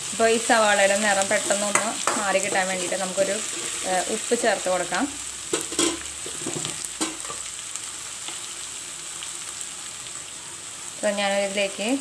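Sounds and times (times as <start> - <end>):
onions sizzling in oil: 0.0 - 12.0
spatula scraping pan: 1.3 - 4.2.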